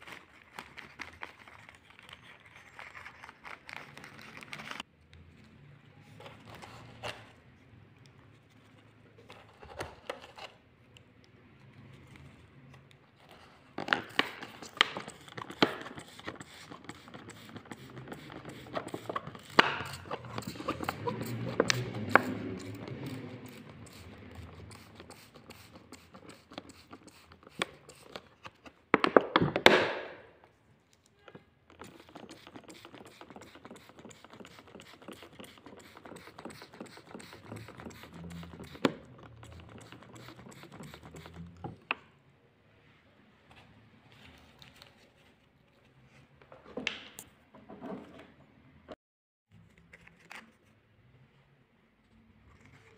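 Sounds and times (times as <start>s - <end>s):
spray bottle hissing: 14.6s - 28.1s, 31.8s - 41.6s.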